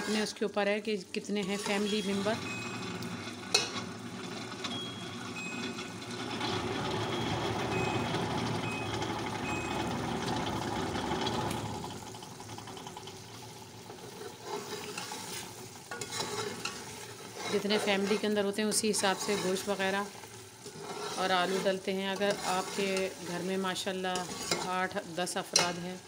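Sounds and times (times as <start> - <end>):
metal spoon scraping a pot: 0.0 - 0.4, 1.2 - 4.9, 13.8 - 26.0
curry sizzling and bubbling in a pot: 1.2 - 26.0.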